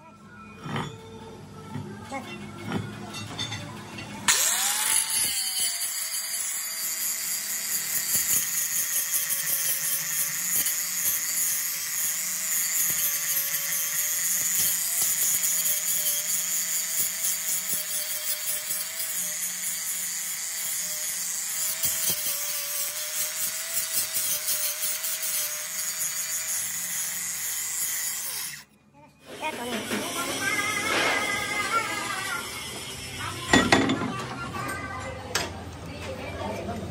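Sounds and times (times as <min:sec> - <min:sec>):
angle grinder motor whine: 0:04.3 - 0:28.7
disc grinding steel: 0:04.3 - 0:28.7.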